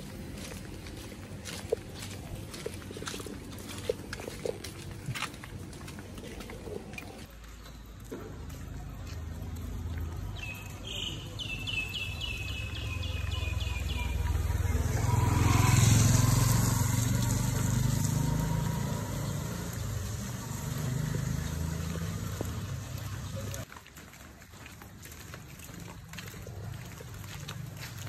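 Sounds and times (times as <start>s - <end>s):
vehicle engine passing by: 8.5s - 23.7s.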